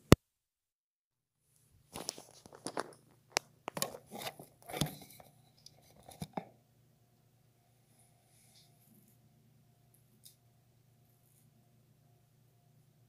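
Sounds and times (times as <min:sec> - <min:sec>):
low steady hum: 0:01.6 - 0:13.0
cable handling clicks and rustles: 0:01.9 - 0:06.5.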